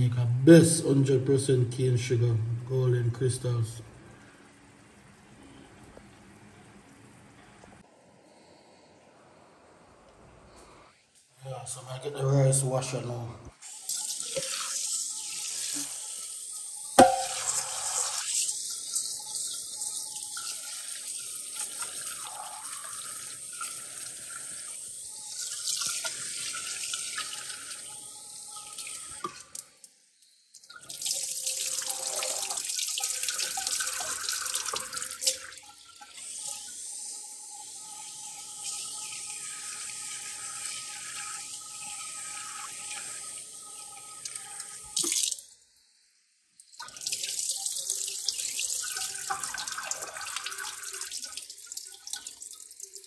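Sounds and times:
tap running into a steel pot: 0:17.0 - 0:17.6
rice rinsed by hand in water: 0:46.8 - 0:53.0.

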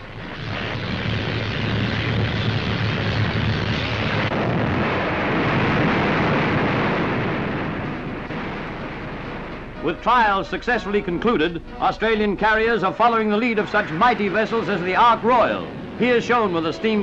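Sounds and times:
steam catapult roar: 0:00.0 - 0:09.7.

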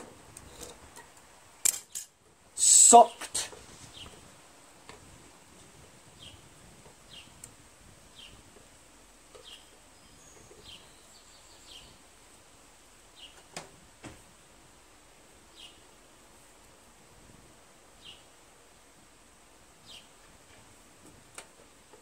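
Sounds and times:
bird chirping: 0:06.2 - 0:07.4, 0:08.1 - 0:08.5, 0:09.3 - 0:12.1, 0:13.1 - 0:13.5, 0:15.5 - 0:15.9, 0:19.8 - 0:20.6.

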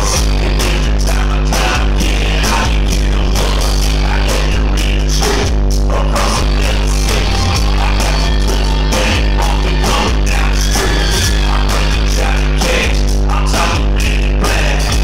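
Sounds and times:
live rock band playing: 0:06.2 - 0:12.9.

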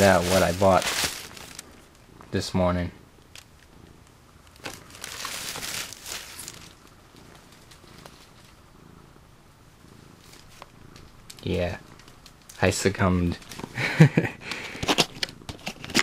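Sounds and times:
plastic bag rustling: 0:00.0 - 0:01.8, 0:04.4 - 0:08.6.

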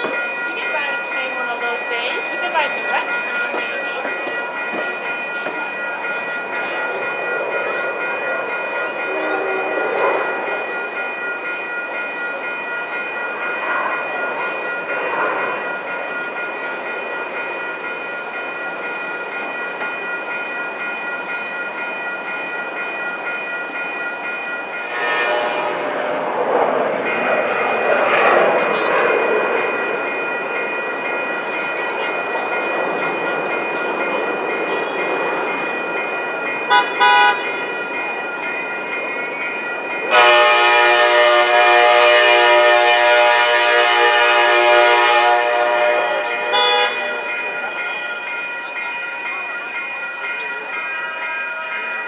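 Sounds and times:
high-pitched ringing tones: 0:00.0 - 0:25.2
train cars rolling past: 0:00.0 - 0:52.0.

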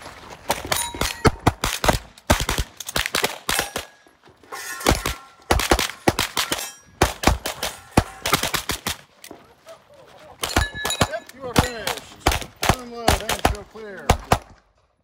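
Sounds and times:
rapid pistol fire: 0:01.0 - 0:03.8, 0:05.5 - 0:09.0, 0:10.4 - 0:14.6.

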